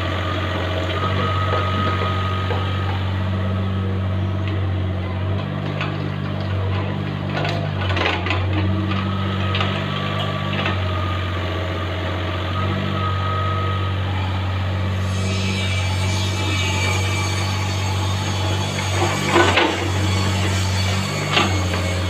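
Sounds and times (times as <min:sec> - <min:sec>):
excavator diesel engine running: 0:00.0 - 0:22.0
faint hydraulic whine: 0:08.4 - 0:22.0.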